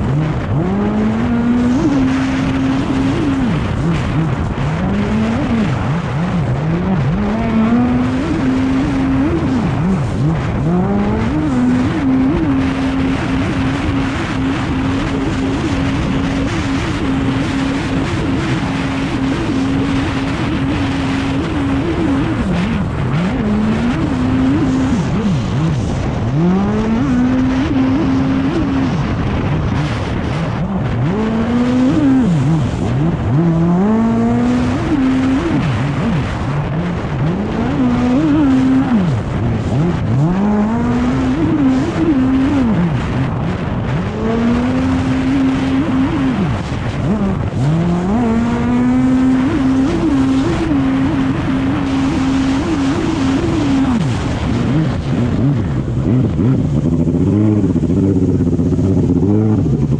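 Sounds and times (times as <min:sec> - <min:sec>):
jet ski engine at full throttle: 0:00.0 - 0:59.9
rush of spray and wind: 0:00.0 - 0:59.9.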